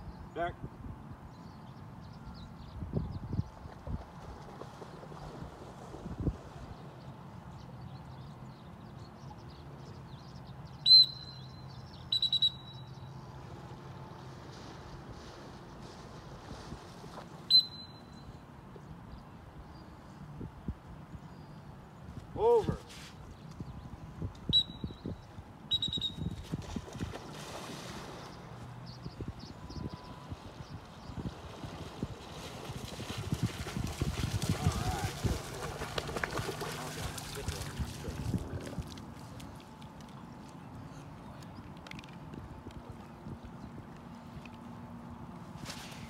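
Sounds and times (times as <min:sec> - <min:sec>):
rumble of wind and water: 0:00.0 - 0:10.6, 0:13.0 - 0:46.0
water noise: 0:24.2 - 0:46.0.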